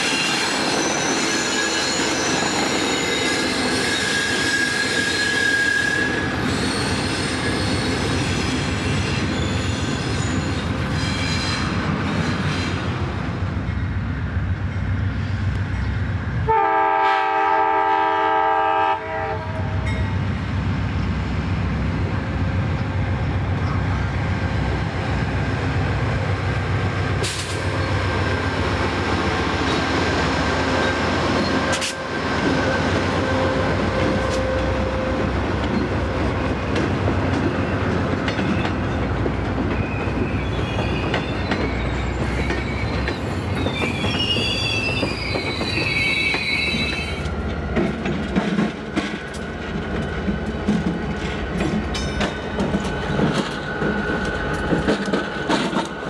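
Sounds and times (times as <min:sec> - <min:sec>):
high wavering wheel squeal: 0:00.0 - 0:12.9, 0:39.7 - 0:47.3
train passing on rails: 0:00.0 - 0:56.0.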